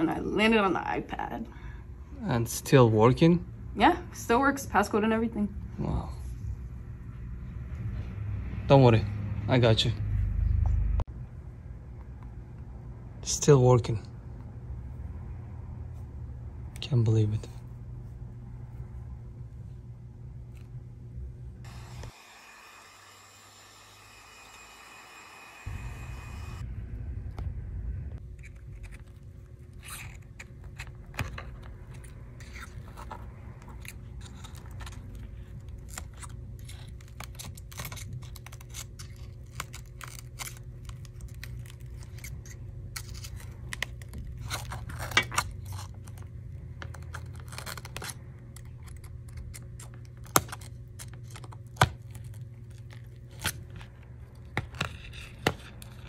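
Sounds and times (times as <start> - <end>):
low hum: 17.4 - 56.0
cracked glass crackling and crunching: 35.7 - 46.3, 46.9 - 53.6.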